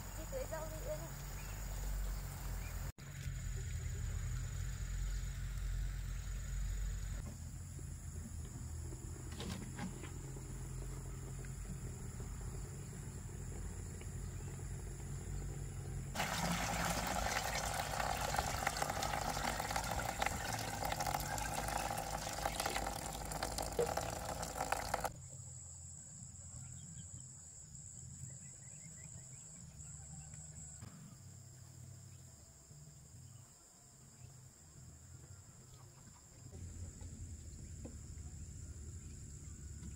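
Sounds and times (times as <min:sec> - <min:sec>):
water running: 0:16.2 - 0:25.2.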